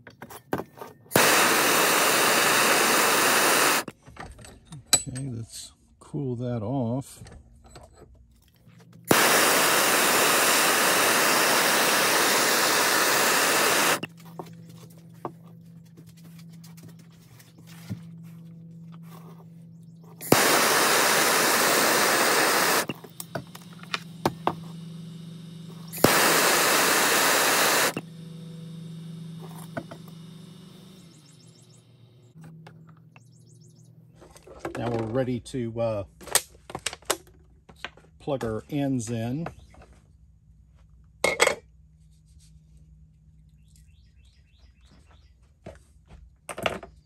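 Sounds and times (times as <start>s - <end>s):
low steady hum: 0.0s - 36.6s
gas torch hissing: 1.1s - 3.9s, 9.1s - 14.1s, 20.2s - 31.8s
gas torch ignition click: 1.1s - 3.9s, 9.1s - 14.1s, 20.2s - 24.8s, 25.6s - 28.6s.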